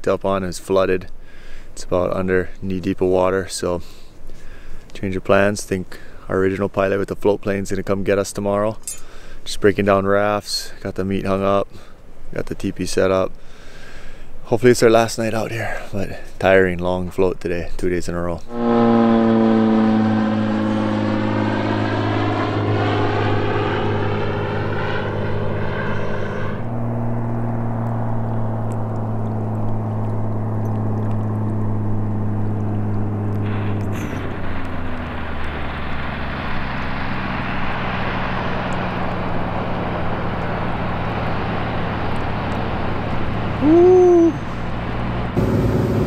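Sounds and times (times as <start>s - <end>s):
propeller plane engine: 18.4s - 46.0s.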